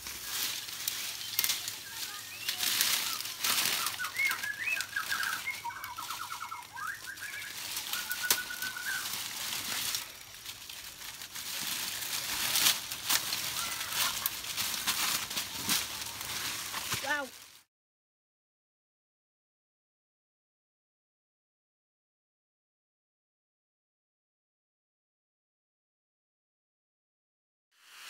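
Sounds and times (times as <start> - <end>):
plastic bag rustling: 0.0 - 17.6
rustling bushes and leaves: 0.0 - 17.7
bird calling: 0.1 - 10.2.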